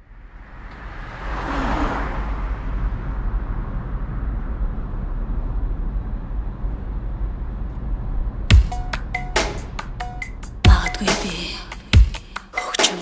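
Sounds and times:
car driving past: 0.1s - 8.3s.

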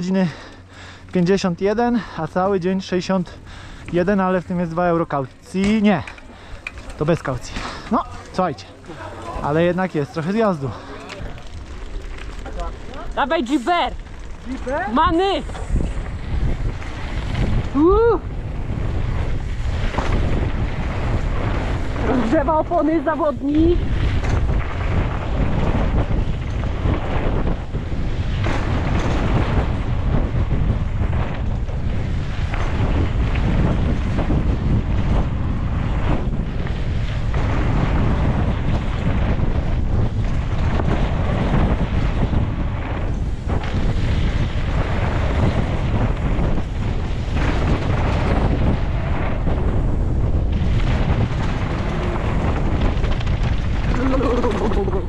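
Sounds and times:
wind rushing over microphone: 0.0s - 55.0s
bike knocking over trail: 24.0s - 55.0s.

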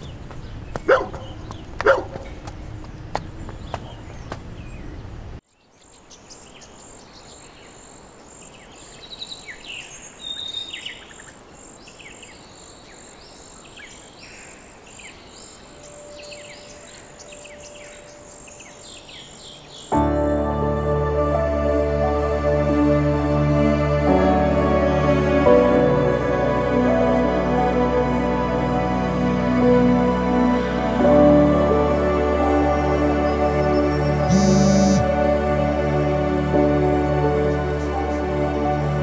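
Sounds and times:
small birds chirping: 0.0s - 20.0s, 34.0s - 35.1s
music: 19.9s - 39.0s
loud noise: 34.3s - 35.1s.

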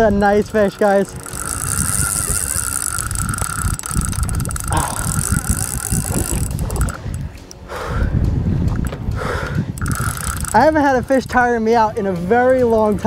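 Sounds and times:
fishing reel drag whining: 0.0s - 7.3s, 9.7s - 11.2s
wind and water rumble: 0.0s - 13.0s.

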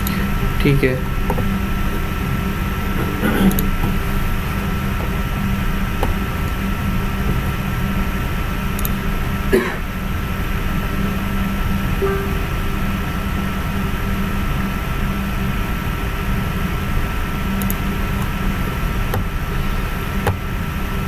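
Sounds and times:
background hum and hiss: 0.0s - 21.0s
thin steady whine: 0.0s - 21.0s
faint clicks: 8.8s - 9.0s, 17.6s - 18.3s.

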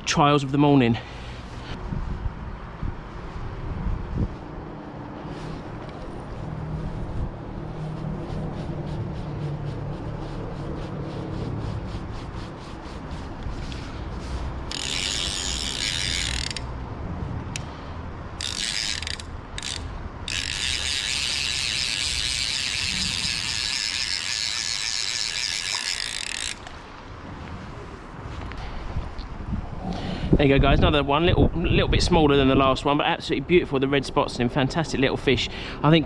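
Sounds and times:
fishing reel ratchet clicking: 14.6s - 16.7s, 18.4s - 26.7s.

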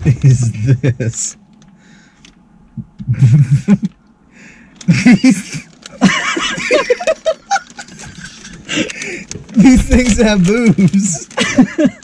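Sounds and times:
people laughing: 0.0s - 1.3s, 3.0s - 4.0s, 4.9s - 12.0s.

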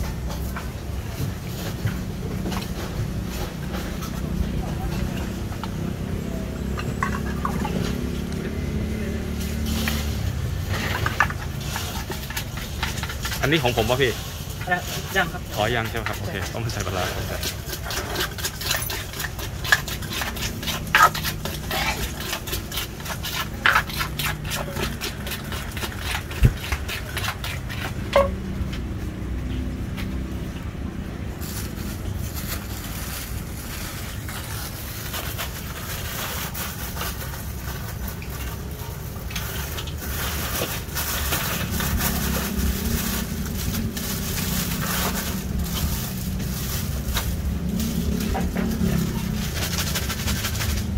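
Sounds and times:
wooden pestle pounding in mortar: 15.9s - 28.7s
plastic bags crinkling: 31.4s - 50.9s.

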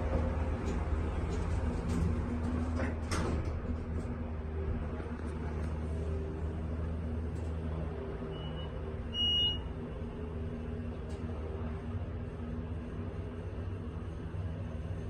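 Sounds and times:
elevator humming: 0.0s - 15.0s
short electronic beep: 8.4s - 9.6s.

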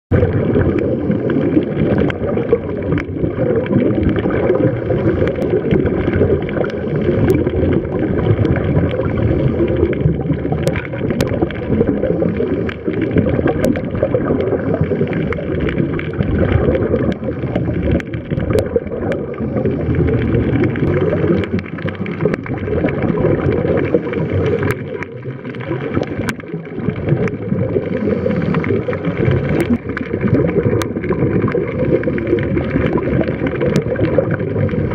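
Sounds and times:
muffled underwater rumble: 0.1s - 34.9s
sharp underwater clicks: 0.1s - 34.9s.

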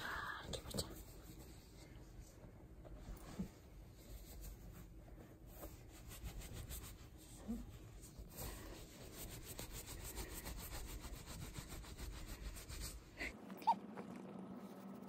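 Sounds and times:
towel rubbing wet fur: 5.6s - 13.2s.

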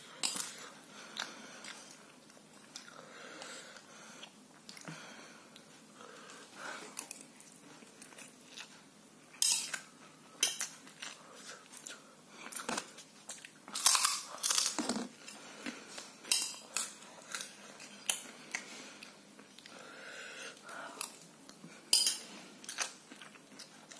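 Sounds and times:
person chewing crunchy food: 6.8s - 19.8s, 20.5s - 23.9s.

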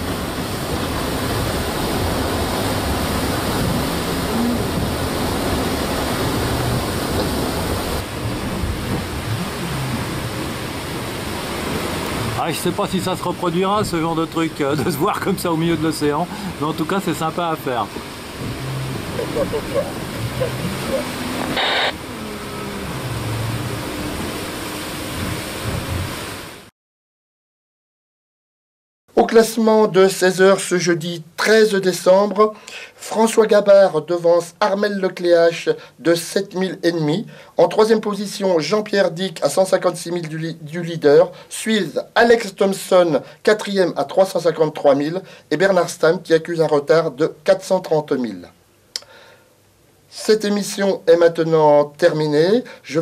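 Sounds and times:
wind over microphone: 0.0s - 12.4s, 18.0s - 26.4s
water rushing past hull: 0.0s - 26.7s
low hum: 2.9s - 11.4s, 18.3s - 26.1s.

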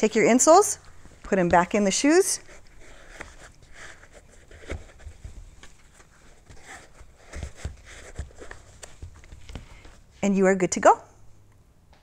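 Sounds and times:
shoes rustling: 0.9s - 10.1s.

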